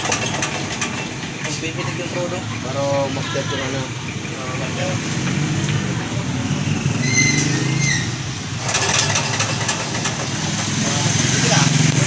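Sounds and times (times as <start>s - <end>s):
engine turning over with clatter: 0.0s - 3.1s, 4.2s - 12.0s
pull-start rope squeal: 7.0s - 10.2s.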